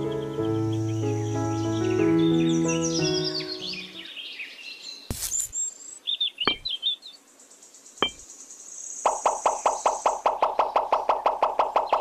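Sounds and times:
bird chirps: 0.0 - 12.0
sharp taps: 6.5 - 6.7.

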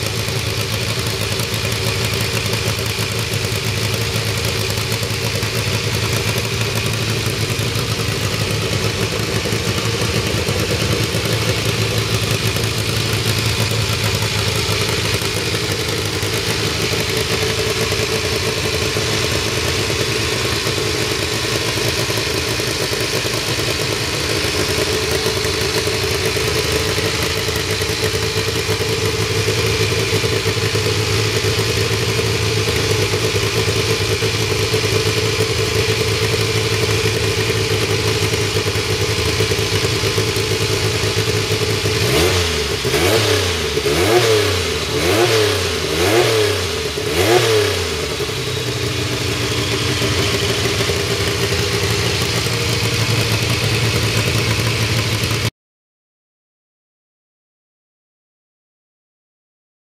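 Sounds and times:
car engine idling and revving: 0.0 - 55.5.

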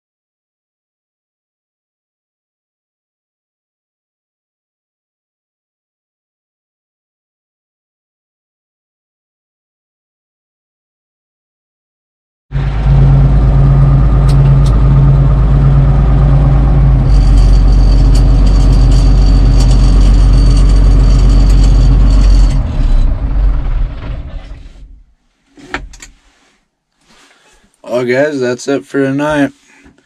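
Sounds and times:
tractor engine running: 12.5 - 25.0
thin high whine: 12.6 - 23.1.

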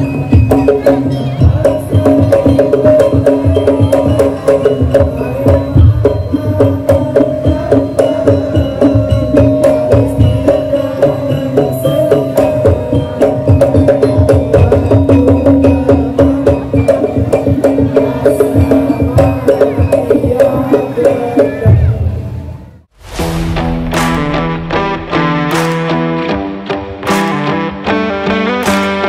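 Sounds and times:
fast dense drumming: 0.0 - 27.4.

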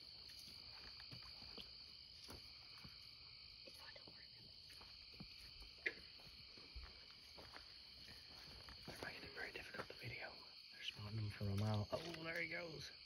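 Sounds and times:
crickets and night insects: 0.0 - 13.0.

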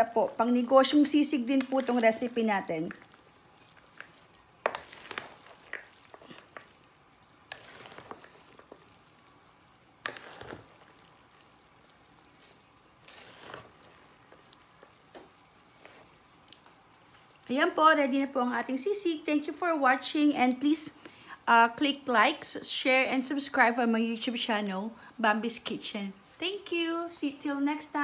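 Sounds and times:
spoon mixing food in glass bowl: 0.5 - 16.6.

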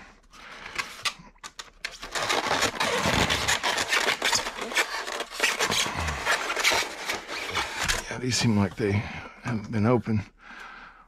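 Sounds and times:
styrofoam squeaking and scraping: 1.9 - 8.2.

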